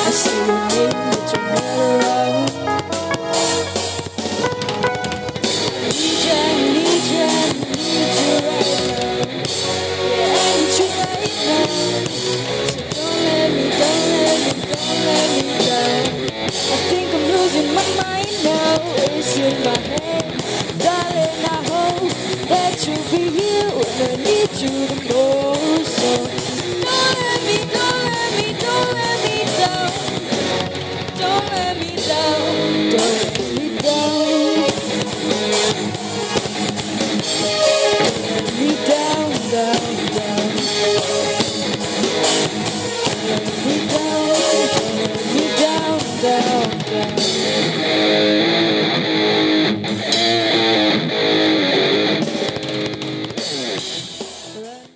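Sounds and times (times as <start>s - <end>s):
woman singing: 0.0s - 3.6s, 5.9s - 30.4s, 31.0s - 35.1s, 38.3s - 41.7s, 42.8s - 47.8s, 54.5s - 54.9s
band with drums bass and guitar: 0.0s - 54.9s.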